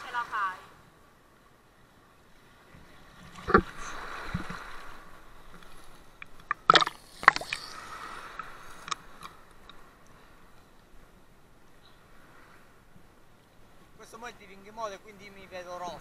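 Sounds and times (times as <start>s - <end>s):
sea water sloshing and splashing: 1.8s - 10.6s.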